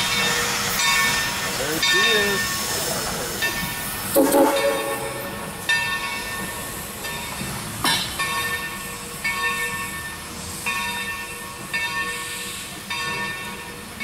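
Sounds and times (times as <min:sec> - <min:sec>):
steam locomotive bell ringing: 0:00.0 - 0:14.0
train rumbling: 0:00.0 - 0:14.0.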